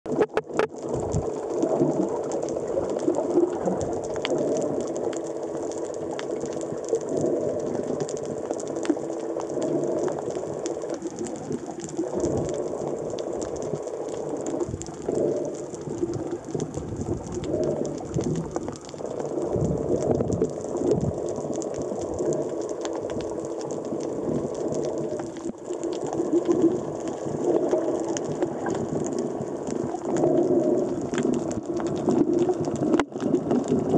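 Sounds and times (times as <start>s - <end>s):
fine crackling underwater: 0.0s - 33.9s
muffled wavering low hum: 0.1s - 33.9s
water swishing: 0.1s - 33.9s.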